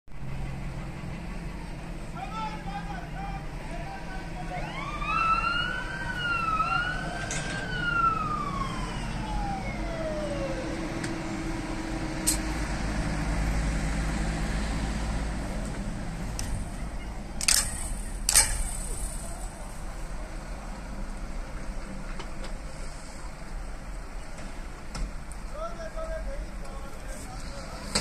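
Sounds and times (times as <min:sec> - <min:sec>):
low vehicle rumble: 0:00.1 - 0:28.0
siren wailing: 0:04.2 - 0:12.0.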